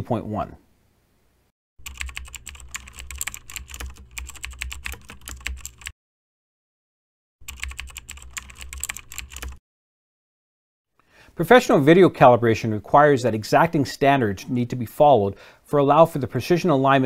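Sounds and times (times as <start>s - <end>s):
keyboard typing: 1.8s - 5.9s, 7.4s - 9.6s.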